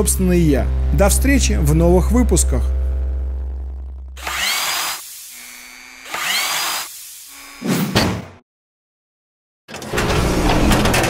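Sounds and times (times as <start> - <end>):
whirring drill-like bursts: 4.2 - 7.7
mechanical grinding clatter: 9.7 - 11.0.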